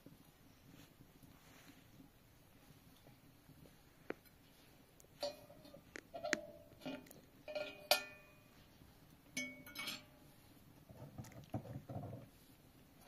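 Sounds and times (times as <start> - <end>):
rustling: 0.0 - 7.9
light metallic clinks: 5.1 - 8.7, 9.3 - 10.4.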